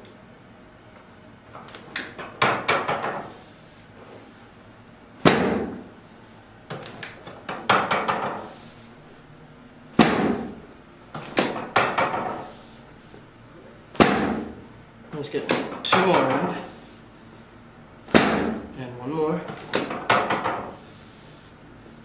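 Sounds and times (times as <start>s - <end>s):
adjusting table knocking and rattling: 1.6s - 3.4s, 6.7s - 8.5s, 10.0s - 12.6s, 19.5s - 20.8s.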